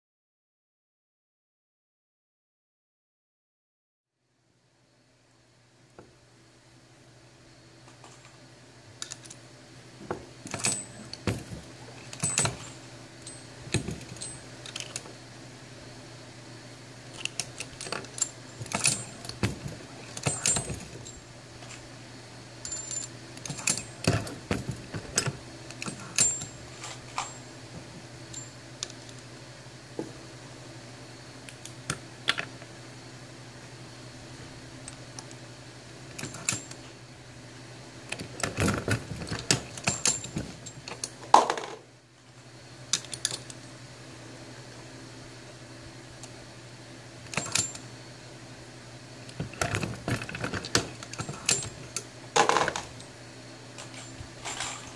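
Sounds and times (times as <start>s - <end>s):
steady low hum: 4.2s - 54.9s
brass cases clinking: 53.8s - 54.9s.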